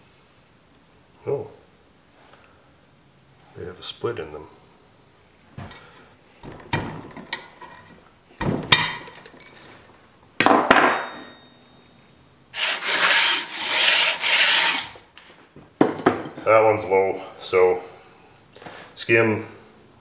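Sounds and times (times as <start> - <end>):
ringing metal clink: 8.7 - 9.8, 10.8 - 12.0.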